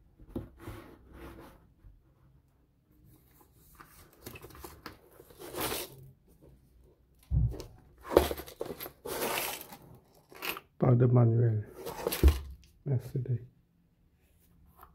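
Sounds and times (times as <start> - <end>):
cardboard and plastic rustling: 3.2 - 6.1, 7.6 - 10.6, 11.7 - 12.7.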